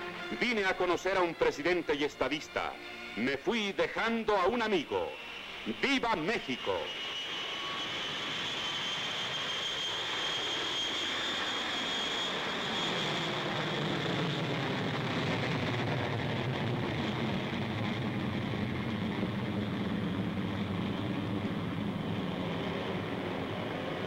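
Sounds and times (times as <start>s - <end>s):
jet engine rumble: 0.0s - 24.0s
jet engines whining: 0.0s - 24.0s.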